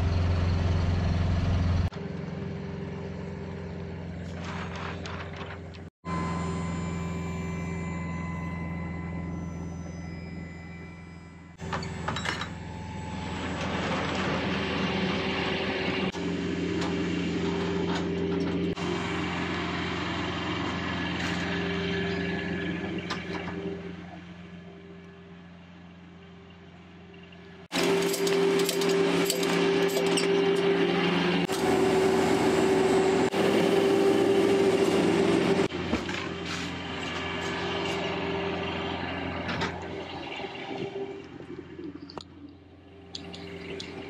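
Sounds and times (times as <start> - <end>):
diesel truck engine idling: 0.0 - 10.6, 12.6 - 23.1.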